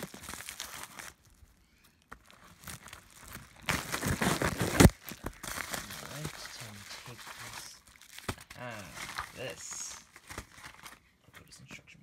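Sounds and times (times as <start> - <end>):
plastic mailer rustling: 2.2 - 11.0.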